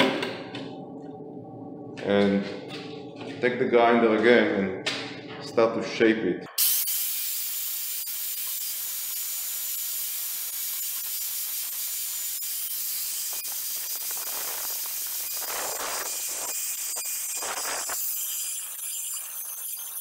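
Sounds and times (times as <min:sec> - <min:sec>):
angle grinder cutting tile: 0:10.8 - 0:20.0.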